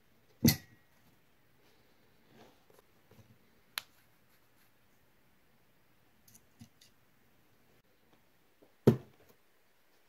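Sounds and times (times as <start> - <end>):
object knocked down on desk: 8.8 - 9.1.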